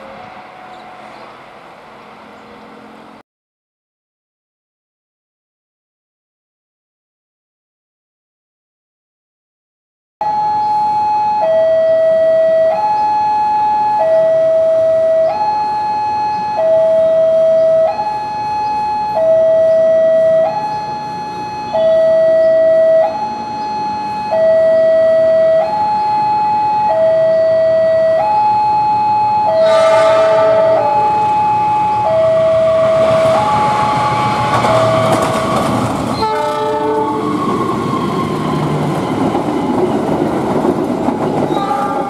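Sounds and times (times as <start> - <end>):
loud burst of approaching train: 0.0 - 3.2, 16.8 - 42.0
two-tone railway warning alarm: 0.0 - 3.2, 10.2 - 40.3, 41.4 - 42.0.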